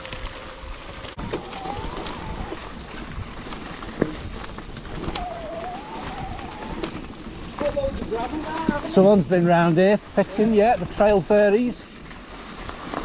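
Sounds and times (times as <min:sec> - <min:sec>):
bicycle tyre rumble and rattling: 0:00.0 - 0:13.0
wind on microphone: 0:01.2 - 0:08.9.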